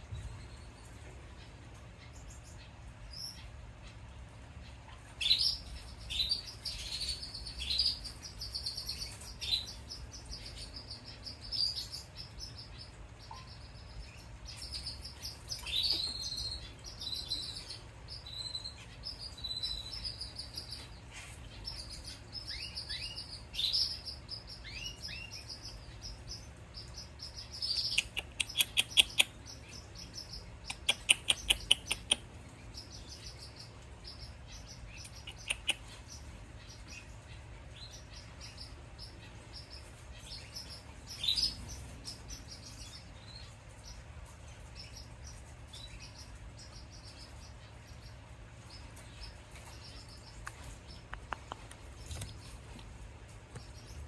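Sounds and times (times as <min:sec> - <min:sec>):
chick peeping: 0:00.0 - 0:54.0
sharp clicks: 0:27.8 - 0:29.4, 0:30.6 - 0:32.3, 0:35.1 - 0:35.9.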